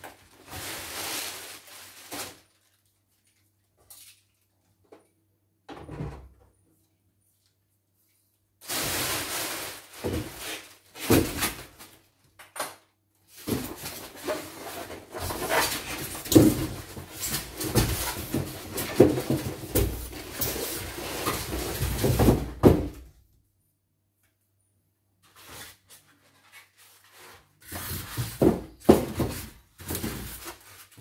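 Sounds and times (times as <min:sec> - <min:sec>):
styrofoam rubbing and scraping: 0:25.3 - 0:31.0.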